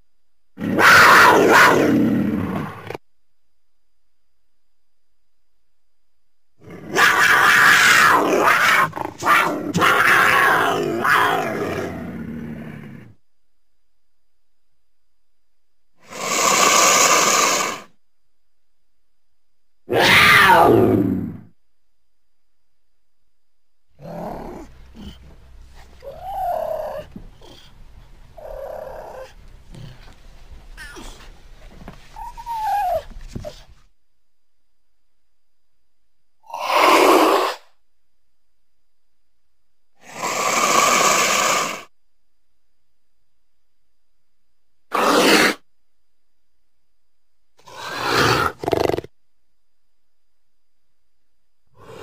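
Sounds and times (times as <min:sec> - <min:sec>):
mountain lion raspy calls: 0:24.0 - 0:31.3, 0:44.9 - 0:45.6, 0:47.6 - 0:49.1, 0:51.8 - 0:52.0.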